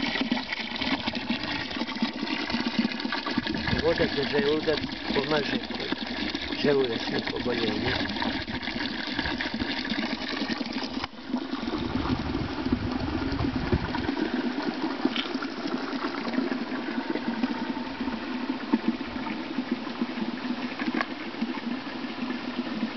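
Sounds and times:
water splashing into stone basin: 0.0 - 16.8.

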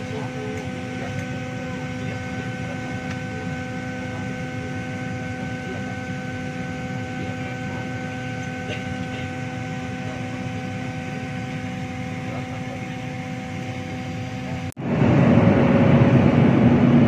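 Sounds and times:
constant low hum: 0.0 - 17.0
ventilation air rushing: 14.8 - 17.0.

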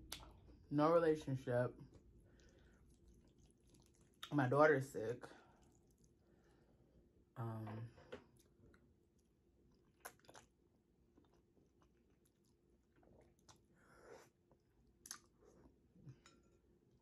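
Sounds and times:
soft chewing: 1.8 - 4.4, 5.3 - 7.2, 7.9 - 17.0
small wet mouth clicks: 15.0 - 15.3.

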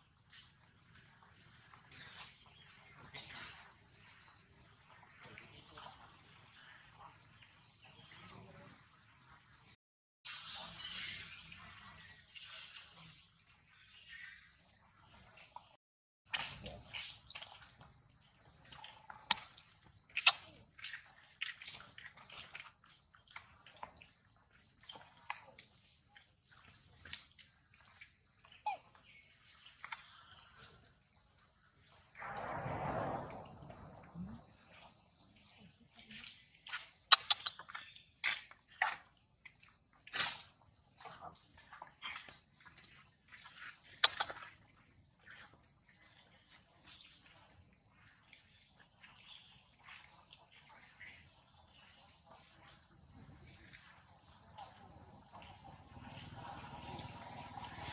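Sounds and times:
insects chorus: 0.0 - 57.9
rustling whoosh: 32.1 - 34.7.

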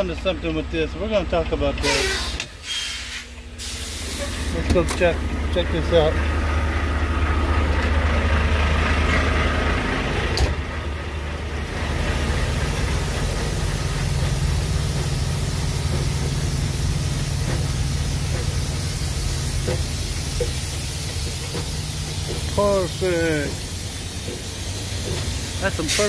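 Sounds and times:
diesel truck engines idling: 0.0 - 26.0
truck cab door shutting: 10.3 - 10.6
steady hiss: 12.9 - 26.0.

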